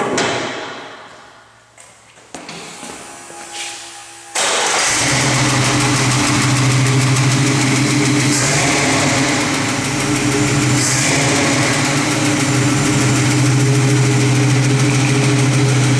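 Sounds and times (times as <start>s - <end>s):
car engine idling: 4.4s - 15.9s.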